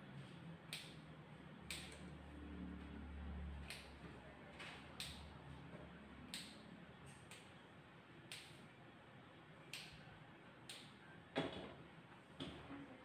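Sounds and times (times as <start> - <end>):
scissors snipping fur: 3.6 - 3.9.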